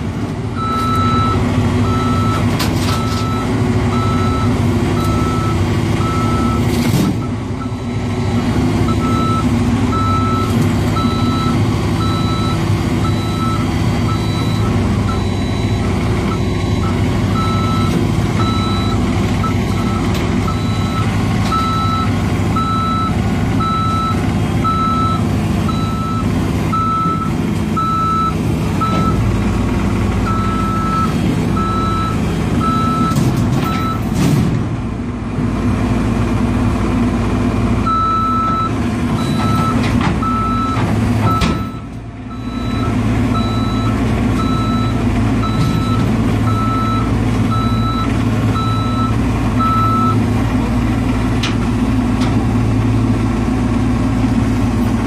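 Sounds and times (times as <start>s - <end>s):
excavator diesel engine under load: 0.0s - 55.0s
travel alarm beeping: 8.9s - 29.2s.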